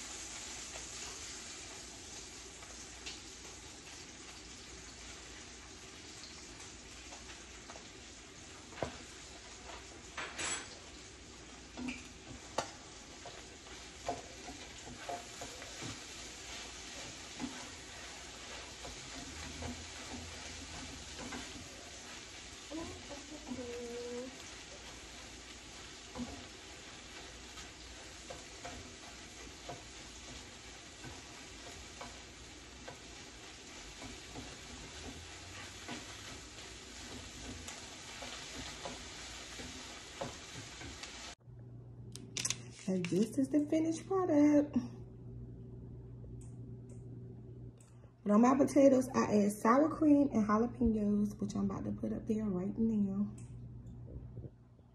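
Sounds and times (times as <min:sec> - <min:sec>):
eggs sizzling in a frying pan: 0:00.0 - 0:41.4
spatula clicking and scraping: 0:11.6 - 0:23.7, 0:24.3 - 0:41.3.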